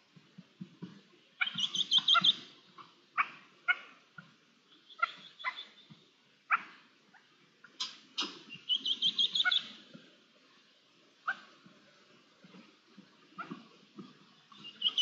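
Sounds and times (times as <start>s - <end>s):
partridges calling: 1.4s - 4.0s, 4.7s - 6.0s, 7.6s - 9.8s, 14.5s - 15.0s.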